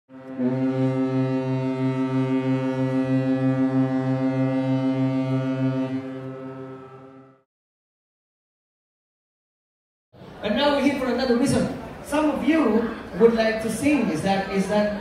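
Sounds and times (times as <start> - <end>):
ship's horn blast: 0.1 - 7.5.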